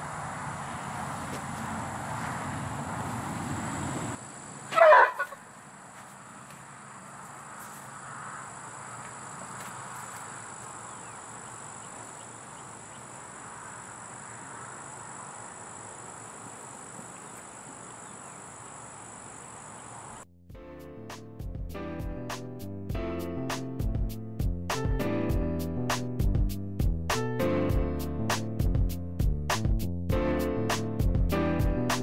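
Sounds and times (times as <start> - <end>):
high insect buzz: 3.1 - 20.2.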